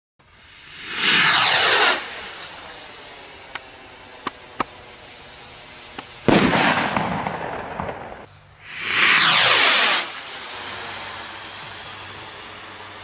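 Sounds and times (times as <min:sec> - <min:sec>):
faint hiss: 0:00.2 - 0:13.0
firework crackle: 0:00.2 - 0:13.0
firework bang: 0:05.8 - 0:11.0.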